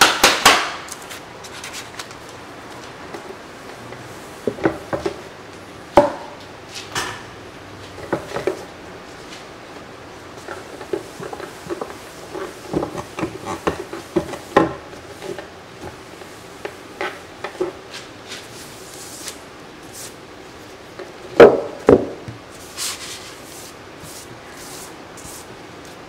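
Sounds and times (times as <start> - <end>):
loud knocks of wooden panel: 21.4 - 22.4
paper towel wiping wood: 22.4 - 26.0.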